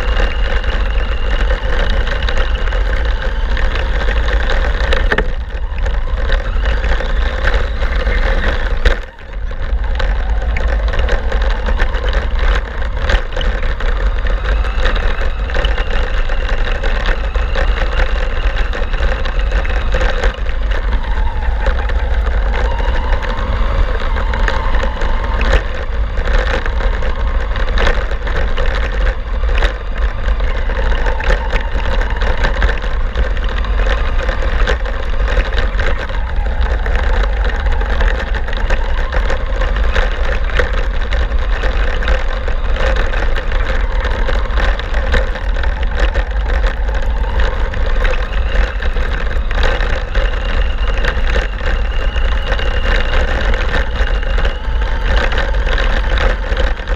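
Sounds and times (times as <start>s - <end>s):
small rattles and clicks: 0.0s - 56.9s
toy truck motor and drivetrain: 0.0s - 56.9s
wind rumble on microphone: 0.0s - 56.9s.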